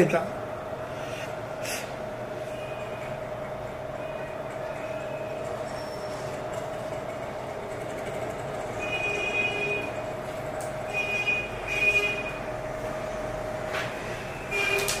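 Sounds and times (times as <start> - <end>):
street traffic hum: 0.3 - 15.0
vehicle horns honking: 8.8 - 10.0, 10.9 - 12.4, 14.4 - 15.0.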